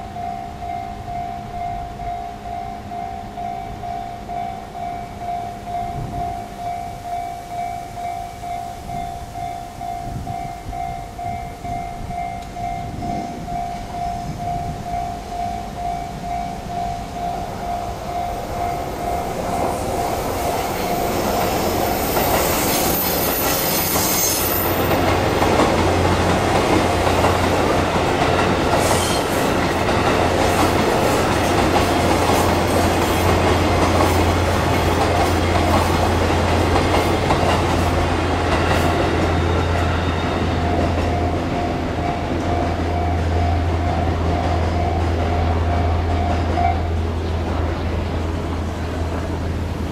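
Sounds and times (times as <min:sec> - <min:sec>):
level crossing bell ringing: 0:00.0 - 0:20.2
train running on rails: 0:00.0 - 0:49.9
thin high squeal: 0:22.0 - 0:24.9, 0:28.8 - 0:29.4.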